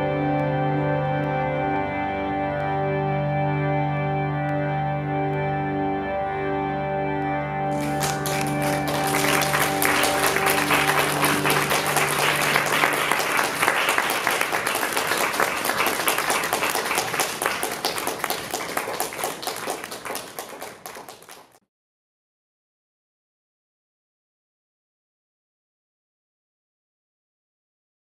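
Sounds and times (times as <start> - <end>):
held organ chord: 0.0 - 20.8
audience applauding: 7.7 - 21.6.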